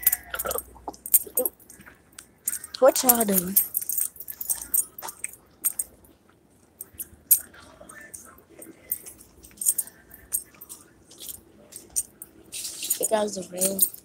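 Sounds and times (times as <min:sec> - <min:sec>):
light clicks and jingling: 0:00.0 - 0:06.2, 0:06.8 - 0:14.0
faint voices: 0:07.4 - 0:14.0.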